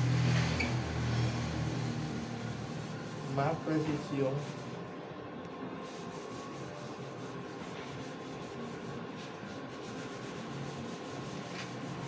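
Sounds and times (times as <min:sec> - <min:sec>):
hand sanding wood: 0:01.7 - 0:04.8, 0:05.8 - 0:12.0.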